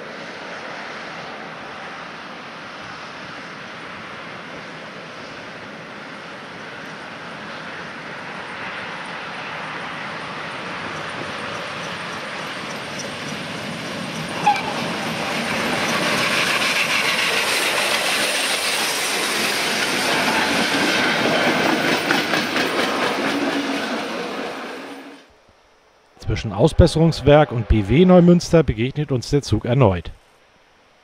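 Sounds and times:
steam train passing: 0.0s - 25.4s, 26.2s - 30.0s
wheels clattering over rails: 10.8s - 24.7s.

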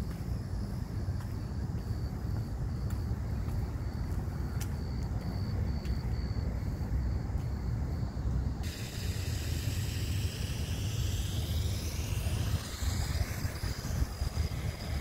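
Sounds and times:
steady hiss: 6.4s - 15.0s.

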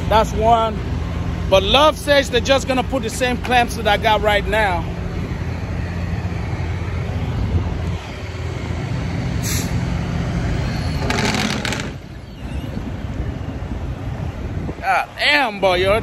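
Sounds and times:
diesel truck engine idling: 0.0s - 16.0s
air brake hiss: 9.4s - 9.8s.

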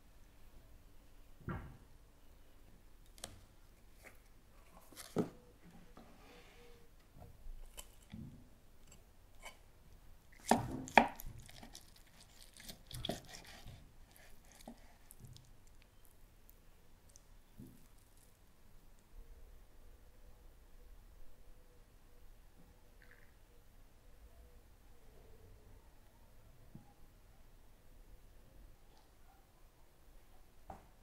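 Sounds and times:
knife cutting on wooden board: 10.4s - 15.2s.

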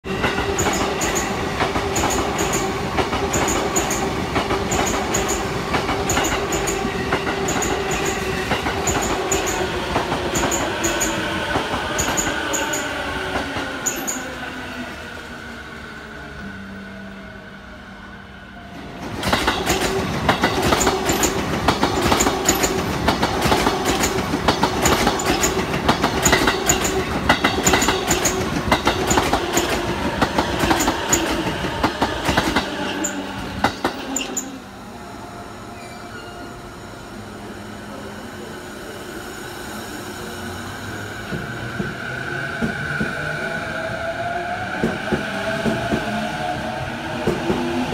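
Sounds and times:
train wheels clacking over joints: 19.2s - 34.5s.

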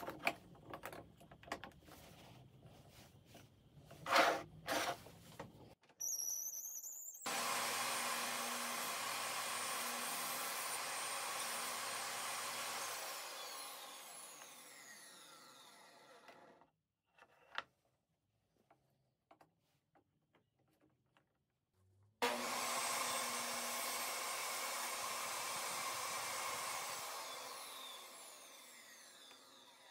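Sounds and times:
saw blade spinning down whine: 6.4s - 16.2s, 22.2s - 29.9s
table saw running: 7.2s - 16.6s, 22.2s - 29.9s.

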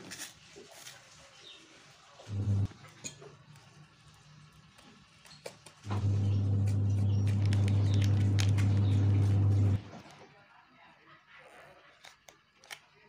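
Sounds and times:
loud steady low hum: 2.3s - 2.7s, 5.9s - 9.8s.

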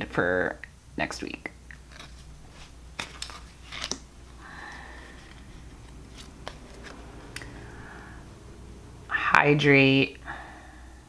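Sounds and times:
cards tapping and sliding: 1.8s - 7.6s.

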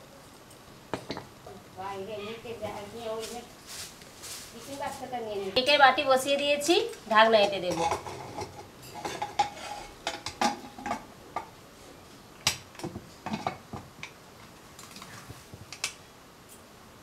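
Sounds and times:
metal lid clinks and scrapes: 7.4s - 11.0s.

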